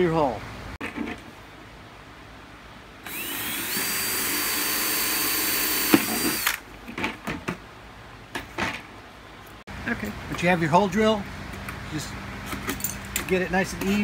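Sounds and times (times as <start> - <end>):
drill motor whining: 3.1 - 6.6
hole saw cutting plastic: 3.1 - 6.6.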